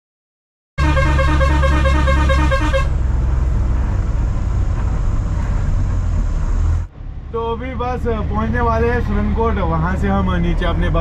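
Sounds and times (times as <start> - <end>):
vehicle horn pulsing beeps: 0.8 - 3.0
road rumble: 0.8 - 11.0
truck engine running: 0.8 - 11.0.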